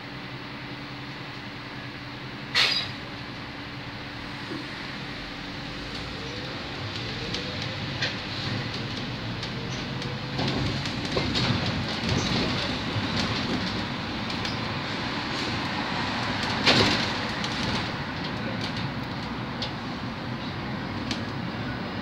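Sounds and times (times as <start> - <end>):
road and tyre noise: 0.0 - 22.0
bus jolt: 2.4 - 3.4, 5.7 - 21.7
bus fittings rattling: 7.3 - 19.8.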